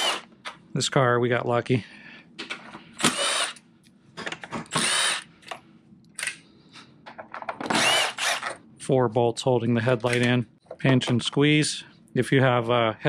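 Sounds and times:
cordless power tool whirring: 0.0 - 0.3, 3.0 - 3.6, 4.7 - 5.3, 7.6 - 8.5.

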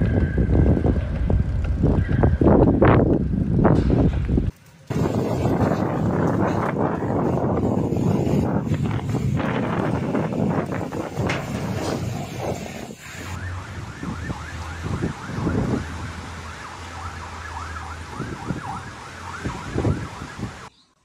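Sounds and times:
wind buffeting microphone: 0.0 - 20.7
electronic siren wailing: 13.2 - 20.7.

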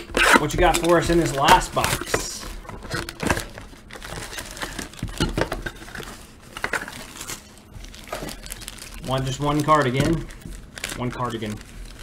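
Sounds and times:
cardboard rustling and tapping: 0.0 - 7.0
plastic wrap crinkling and tearing: 0.0 - 12.0.

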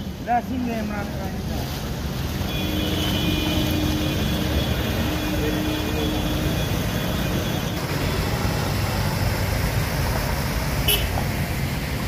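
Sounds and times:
tyres pushing through water: 0.0 - 12.0
vehicle engines running: 3.0 - 12.0.

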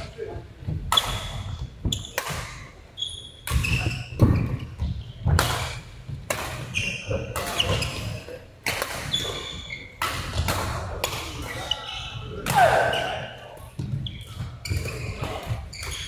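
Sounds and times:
sneaker squeaks on court: 1.0 - 5.4, 6.5 - 8.2, 9.1 - 10.4, 12.8 - 16.0
rackets striking shuttlecock: 5.2 - 8.0.

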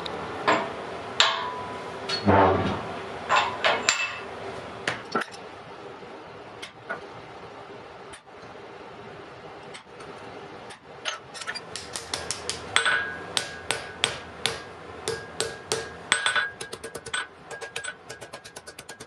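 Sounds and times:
hammer striking iron on anvil: 0.5 - 2.2, 11.7 - 19.0.

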